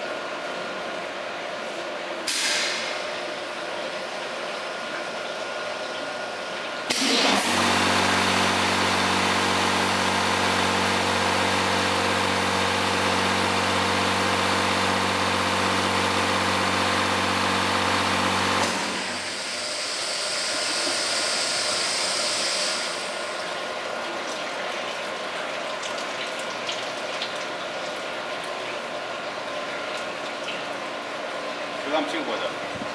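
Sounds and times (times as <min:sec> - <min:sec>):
pump motor humming: 0:03.3 - 0:32.9.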